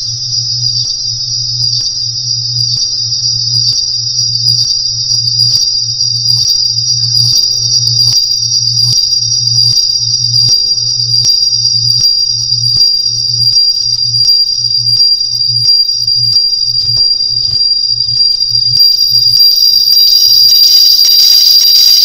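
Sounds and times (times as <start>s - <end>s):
low pulsing hum: 0.0s - 19.4s
scanner high-pitched whine: 0.0s - 22.0s
hiss: 20.1s - 22.0s.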